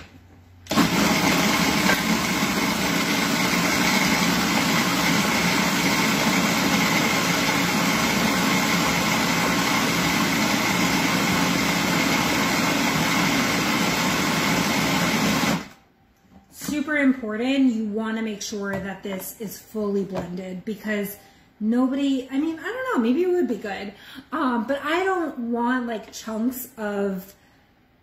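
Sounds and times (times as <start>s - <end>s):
food processor motor whine: 0.7s - 15.8s.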